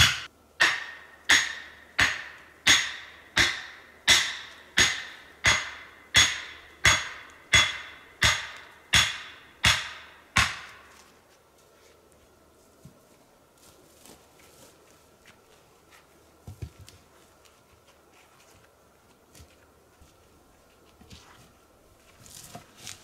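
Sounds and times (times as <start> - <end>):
hammer knocking wooden stake: 0.0 - 10.9.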